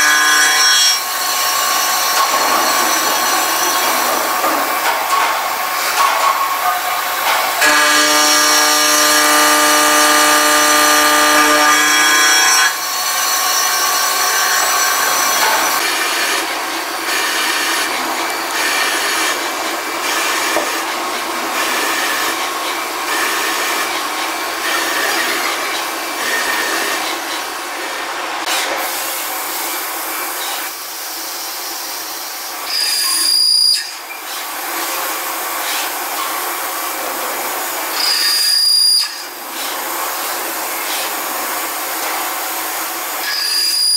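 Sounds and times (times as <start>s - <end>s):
machine spindle whine: 1.0s - 4.9s, 7.0s - 28.1s
drill boring into metal: 7.6s - 16.0s.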